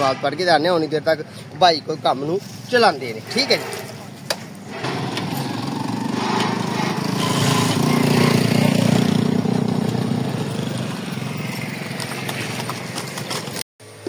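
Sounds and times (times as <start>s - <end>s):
motorcycle engine running: 4.8s - 13.6s.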